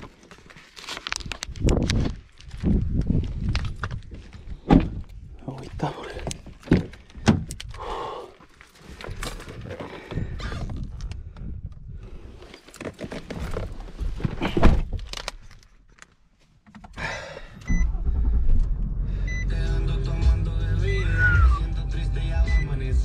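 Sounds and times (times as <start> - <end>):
low rumble: 17.6 - 23.0
music: 19.4 - 23.0.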